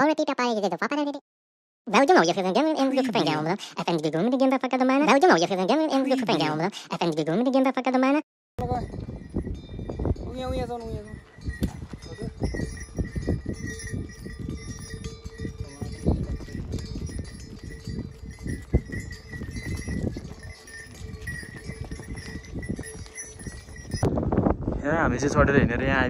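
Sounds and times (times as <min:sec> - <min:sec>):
mule bells ringing: 0:08.6 - 0:24.1
hooves thudding on dirt: 0:10.6 - 0:24.1.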